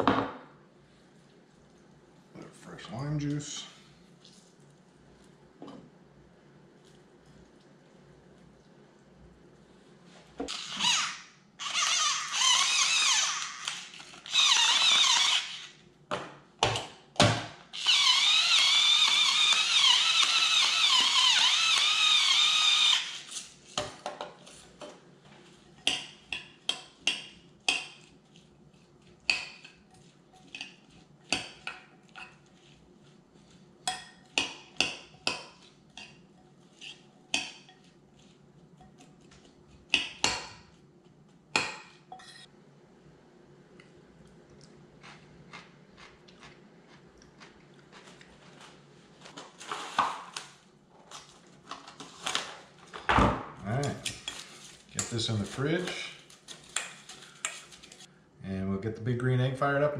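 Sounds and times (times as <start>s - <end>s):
electric grinder whirring: 10.5s - 15.7s, 17.8s - 23.3s.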